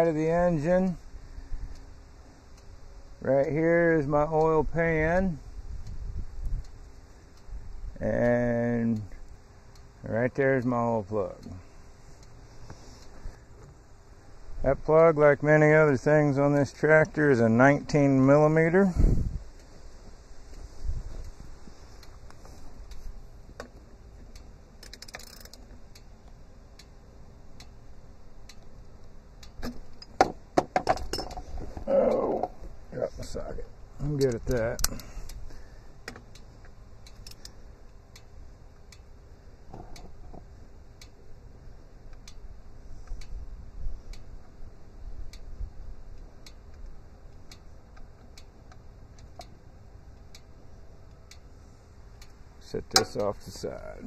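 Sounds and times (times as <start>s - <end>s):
light sharp ticking: 0.4s - 3.6s, 5.3s - 14.7s, 19.4s - 30.5s, 31.9s - 54.0s
socket ratchet clicking: 24.8s - 25.7s, 36.1s - 37.6s.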